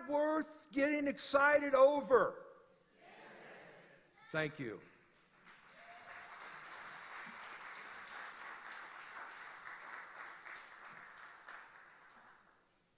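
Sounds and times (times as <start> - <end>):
audience applauding: 5.4 - 12.6.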